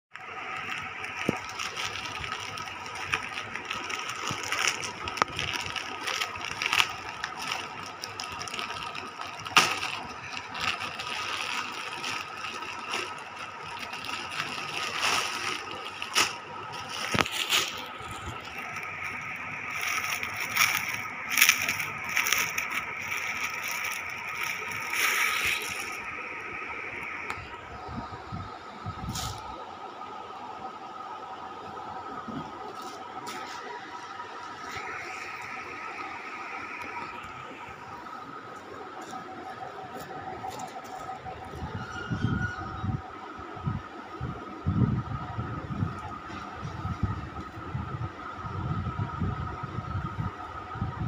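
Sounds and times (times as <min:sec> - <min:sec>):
plastic mailer crinkling and tearing: 0:00.2 - 0:26.3, 0:34.6 - 0:37.5.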